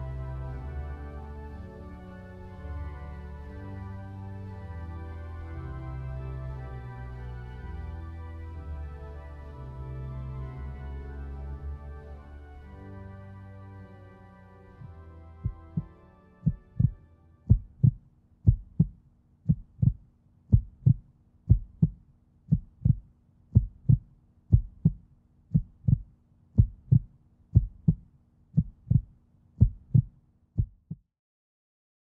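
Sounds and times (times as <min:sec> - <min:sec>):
faint low hum: 0:00.0 - 0:31.0
heartbeat thumps: 0:14.8 - 0:31.0.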